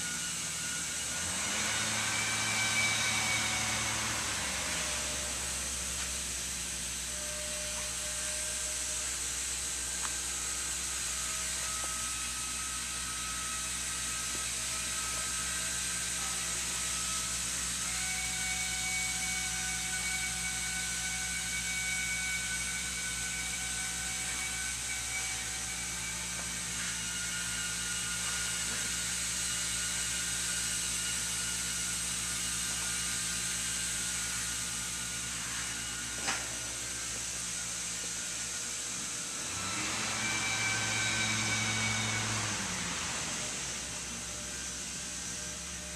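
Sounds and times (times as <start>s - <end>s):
faint whining tones: 0.0s - 45.9s
yarn machine whirring: 37.6s - 45.9s.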